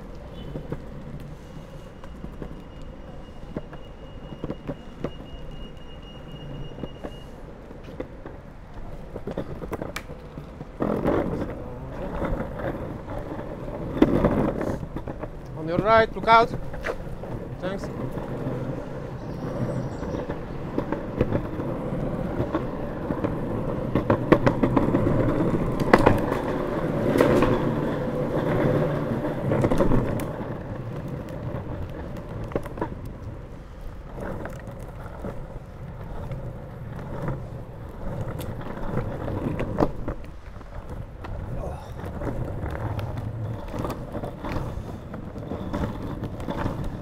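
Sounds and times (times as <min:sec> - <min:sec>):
longboard wheels rolling on asphalt: 0:00.0 - 0:47.0
sharp clicks over cracks: 0:07.9 - 0:11.5.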